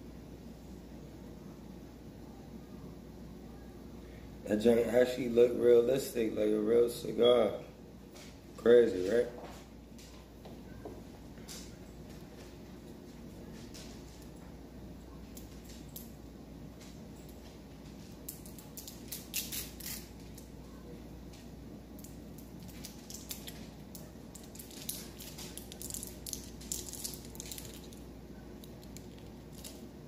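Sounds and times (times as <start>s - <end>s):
low room hum: 0.0s - 30.0s
foil wrapper crinkling: 18.1s - 20.5s, 22.0s - 30.0s.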